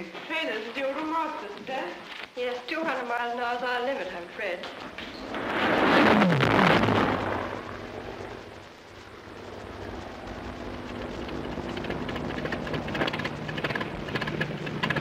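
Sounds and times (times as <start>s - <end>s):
rapid crackling pops: 0.0s - 15.0s
piston aero engine running: 4.8s - 15.0s
propeller aircraft flying past: 4.8s - 15.0s.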